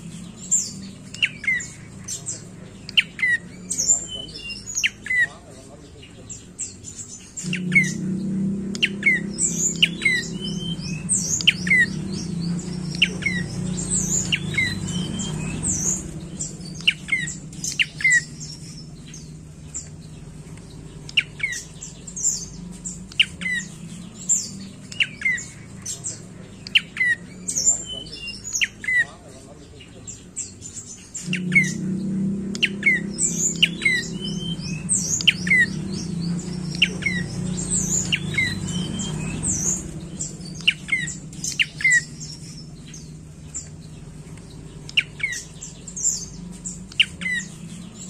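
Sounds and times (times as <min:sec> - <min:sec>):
low steady hum: 0:00.0 - 0:48.0
bird calling sharp high notes: 0:07.4 - 0:19.0, 0:31.2 - 0:42.8.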